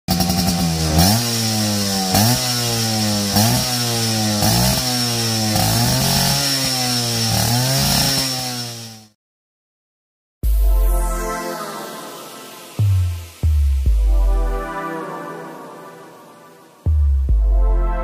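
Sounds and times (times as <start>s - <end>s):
motorcycle engine revving: 0.1s - 9.2s.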